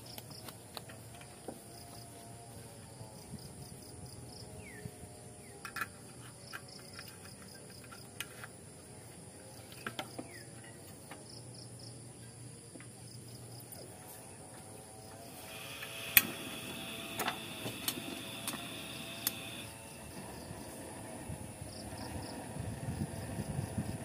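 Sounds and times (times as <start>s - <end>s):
insects chirping: 0.0s - 24.0s.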